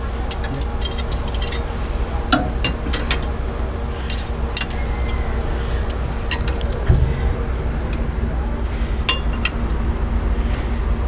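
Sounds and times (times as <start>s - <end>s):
steady low hum: 0.0s - 11.0s
wrench clinking against bolt: 0.2s - 1.7s, 4.0s - 5.2s.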